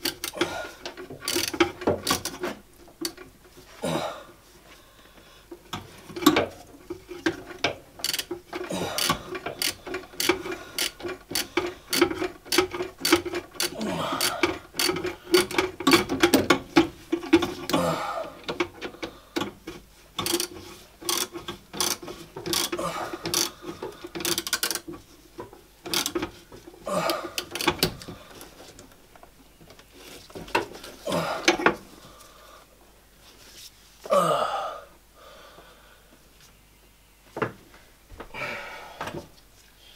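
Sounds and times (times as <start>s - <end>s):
hand tools clicking and knocking: 0.0s - 3.5s, 5.5s - 28.9s, 29.6s - 31.8s
faint steady hum: 0.0s - 39.9s.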